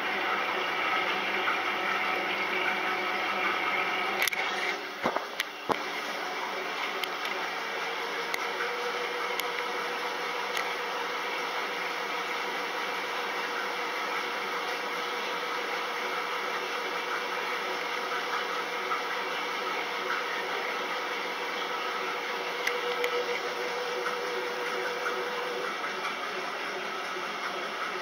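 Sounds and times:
washing machine whirring: 0:00.0 - 0:28.0.

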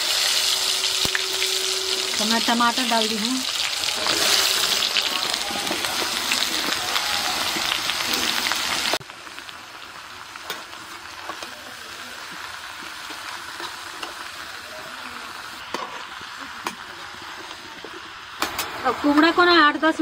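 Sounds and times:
vegetables sizzling in hot oil: 0:00.0 - 0:20.0.

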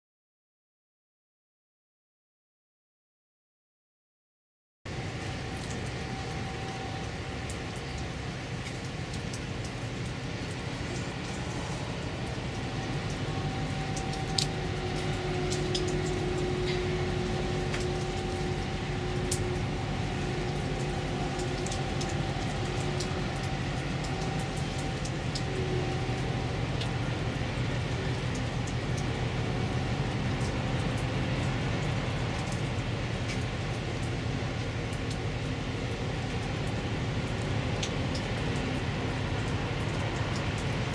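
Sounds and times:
faint steady tones: 0:04.9 - 0:35.2
container ship drone: 0:04.9 - 0:40.9.

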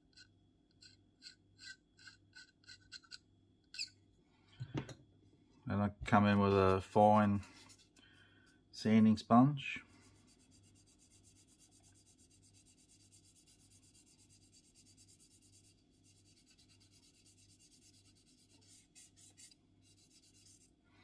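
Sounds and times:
sanding sponge rubbing plastic: 0:10.2 - 0:20.8.

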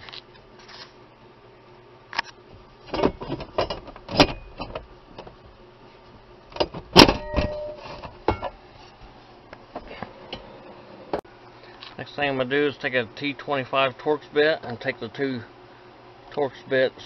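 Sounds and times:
metal clanks and knocks: 0:02.9 - 0:05.4, 0:06.6 - 0:08.6
short metallic ring: 0:07.0 - 0:08.5.

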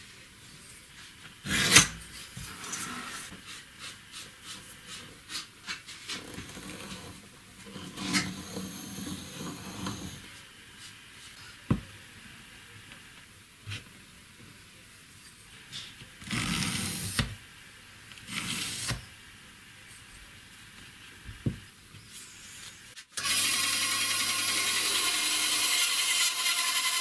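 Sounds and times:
pencil scratching along ruler: 0:18.3 - 0:19.0.

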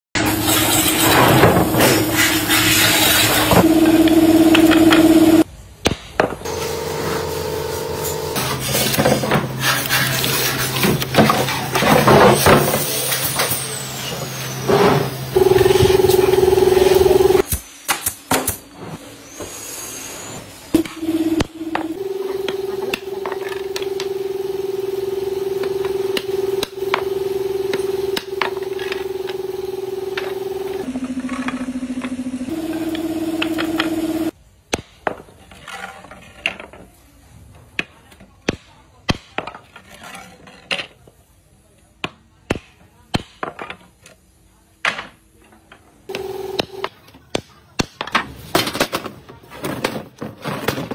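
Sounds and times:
held tone changing pitch: 0:03.5 - 0:05.4, 0:15.4 - 0:17.4, 0:20.8 - 0:34.3.

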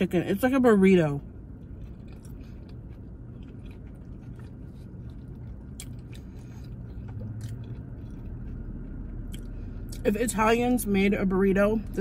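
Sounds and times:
low steady hum: 0:00.0 - 0:12.0
person chewing food: 0:01.2 - 0:10.0.

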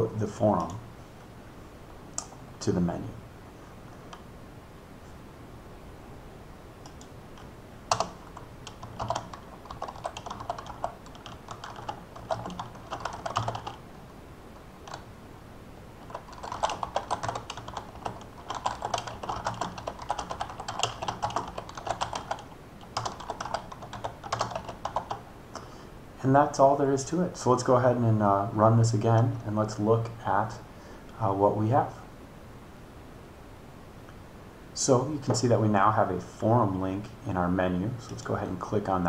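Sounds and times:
computer keyboard typing: 0:06.8 - 0:13.8, 0:14.8 - 0:15.0, 0:16.0 - 0:25.2.

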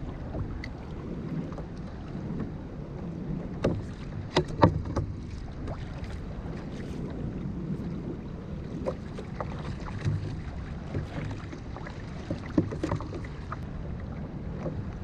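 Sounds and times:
water slapping against kayak hull: 0:00.0 - 0:15.0
wind rumble on microphone: 0:00.0 - 0:15.0
sharp knocks on hull: 0:03.6 - 0:05.9.

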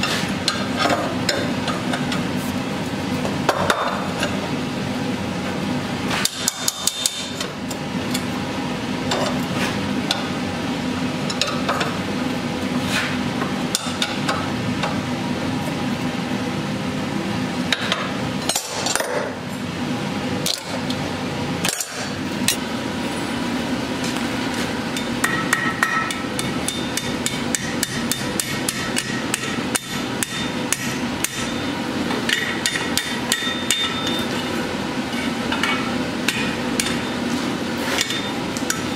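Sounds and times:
steady hum: 0:00.0 - 0:38.9
hammer striking steel on anvil: 0:25.0 - 0:31.6, 0:32.3 - 0:34.2, 0:35.6 - 0:37.1.

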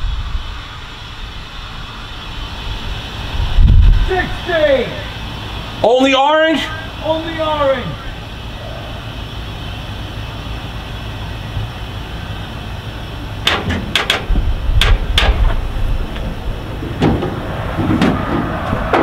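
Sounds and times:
vehicle engine idling: 0:00.0 - 0:19.0
sharp metallic clacks: 0:13.4 - 0:16.3.

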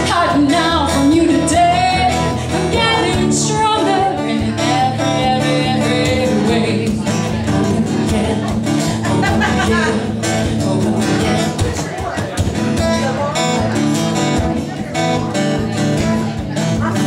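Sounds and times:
woman singing: 0:00.0 - 0:11.6
strummed acoustic guitar: 0:00.0 - 0:17.0.

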